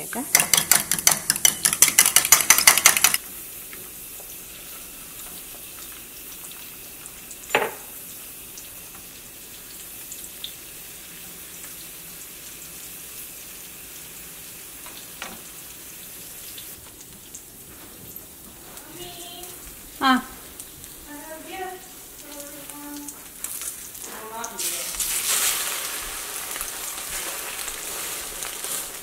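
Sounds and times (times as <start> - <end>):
omelette frying in a pan: 0.0 - 29.0
eggs beaten in a mug: 0.1 - 3.2.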